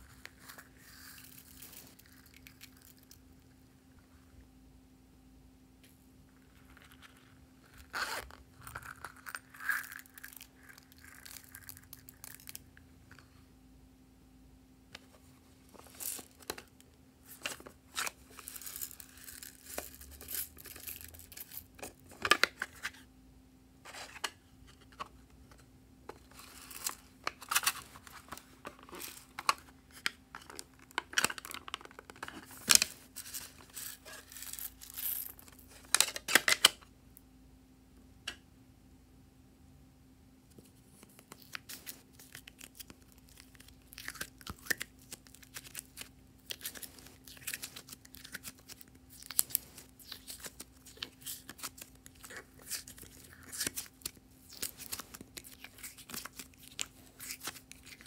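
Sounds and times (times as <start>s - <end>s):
faint steady hum: 0.0s - 58.0s
crinkly rustling: 40.6s - 58.0s.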